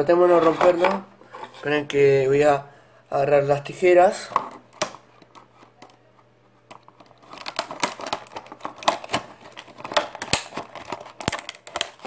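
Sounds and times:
plastic packaging crackling: 6.7 - 12.0.

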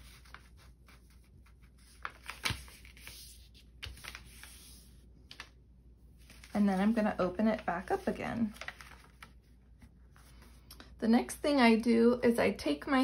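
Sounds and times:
paper folding and creasing: 0.0 - 5.6, 6.2 - 10.6.

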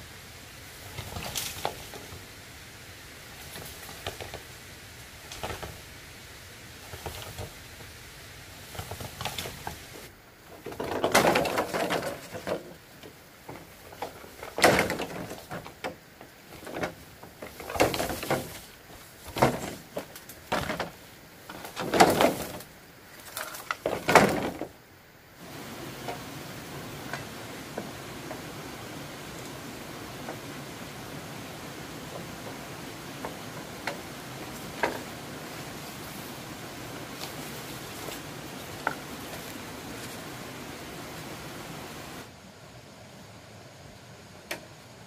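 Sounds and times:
faint hiss: 0.0 - 45.0
short knocks and scraping: 8.6 - 24.8, 32.0 - 40.4.

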